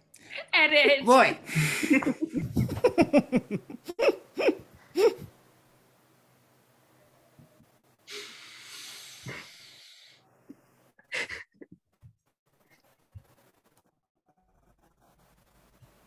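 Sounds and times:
breath hissing into microphone: 0:08.1 - 0:10.2.

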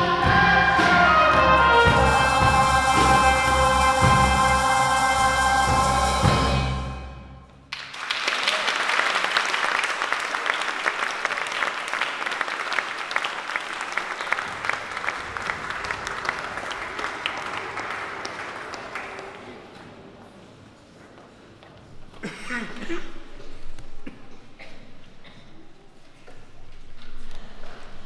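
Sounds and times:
audience applause: 0:07.7 - 0:19.7.

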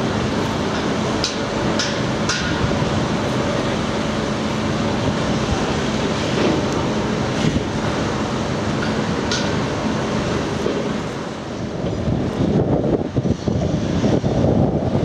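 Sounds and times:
locomotive engine hum: 0:00.0 - 0:15.0
train rumble: 0:00.0 - 0:15.0.

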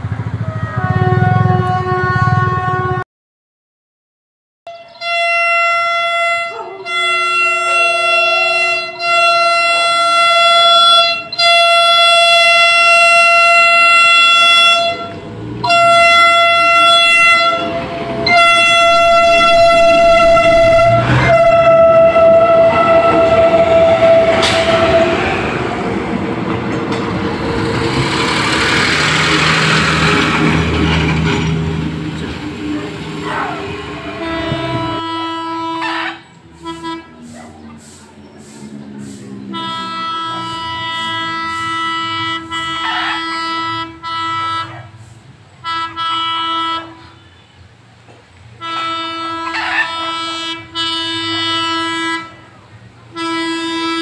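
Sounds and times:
train diesel engines: 0:00.0 - 0:03.0, 0:04.7 - 0:54.0
train horn blasts: 0:00.4 - 0:03.0, 0:04.7 - 0:26.0, 0:26.9 - 0:38.0, 0:38.6 - 0:47.5, 0:48.6 - 0:54.0
train wheels on rails: 0:09.7 - 0:46.2.

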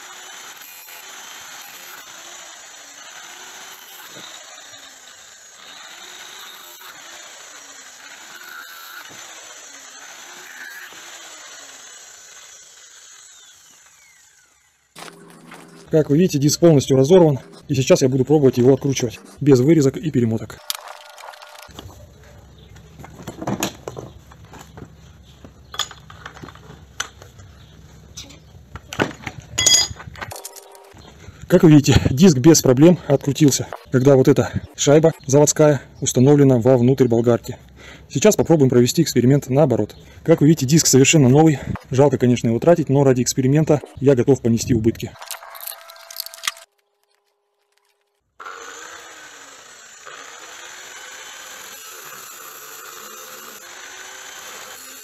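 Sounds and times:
angle grinder running: 0:00.0 - 0:55.0
metal clinks and clicks: 0:29.6 - 0:31.0, 0:45.2 - 0:48.2.

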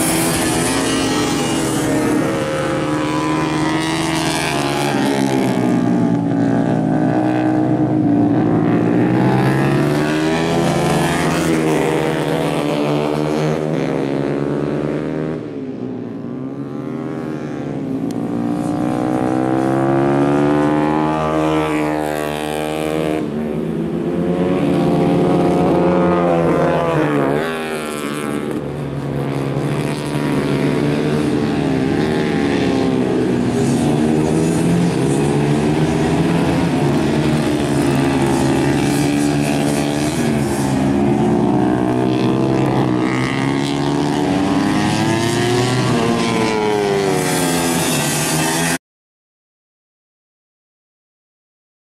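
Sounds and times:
motorcycle engines revving: 0:00.0 - 0:48.8.

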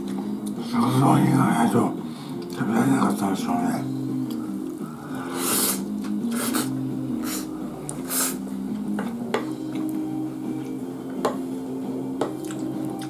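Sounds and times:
soft background music: 0:00.0 - 0:13.0
chewing and mouth noises: 0:12.2 - 0:13.0.

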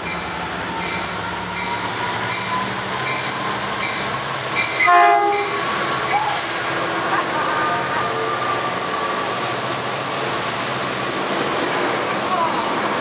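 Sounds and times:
train rumbling past: 0:00.0 - 0:13.0
train horn blast: 0:04.8 - 0:05.8.

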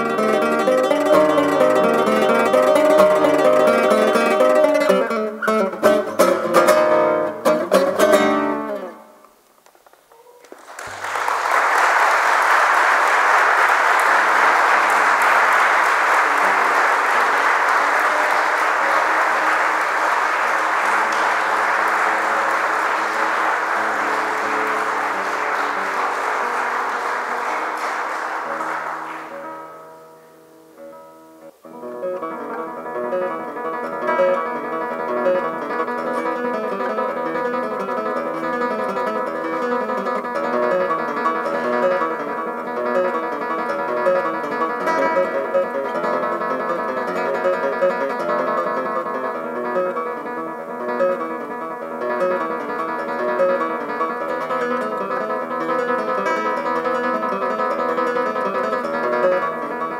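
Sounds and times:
audience applauding: 0:00.0 - 0:05.0, 0:10.0 - 0:29.9, 0:36.1 - 0:50.1, 0:51.9 - 0:59.9
classical guitar playing: 0:00.0 - 0:09.5, 0:13.2 - 0:59.9.

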